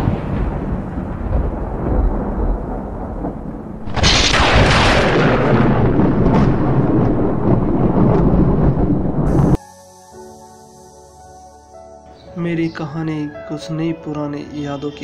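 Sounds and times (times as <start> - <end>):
loud thunderclap: 0.0 - 9.6
rolling thunder rumble: 0.0 - 9.6.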